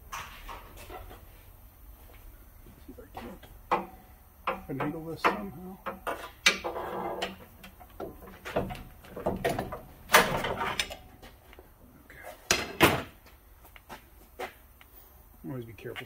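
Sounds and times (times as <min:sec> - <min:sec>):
sharp metal knocks: 0:03.7 - 0:11.0.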